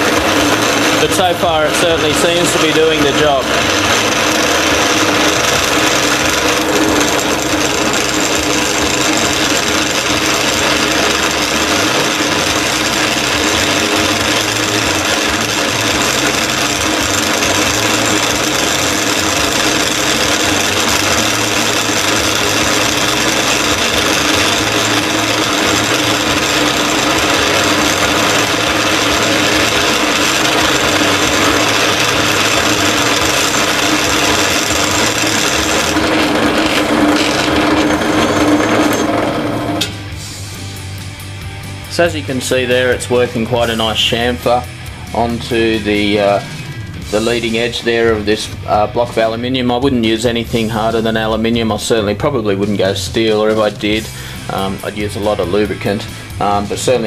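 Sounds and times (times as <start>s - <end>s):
chisel rasping on metal: 0.0s - 39.9s
drill press motor tone: 0.0s - 49.3s.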